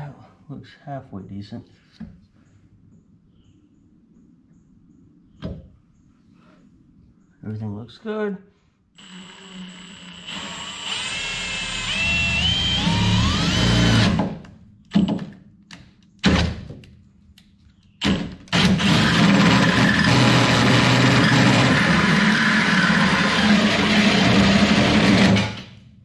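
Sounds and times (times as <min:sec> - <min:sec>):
cordless drill with hole saw cutting: 0:09.0 - 0:14.3, 0:18.5 - 0:25.6.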